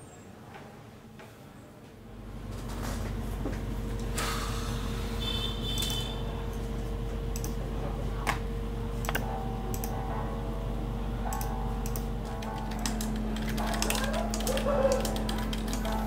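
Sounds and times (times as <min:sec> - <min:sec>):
low indoor hum: 0:00.0 - 0:16.0
sharp clicks: 0:11.4 - 0:12.1.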